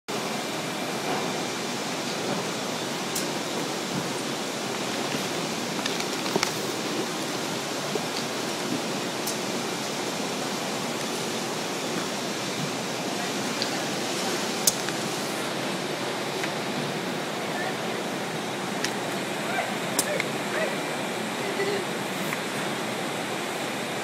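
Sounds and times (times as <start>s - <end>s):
workshop machinery running: 0.1s - 24.0s.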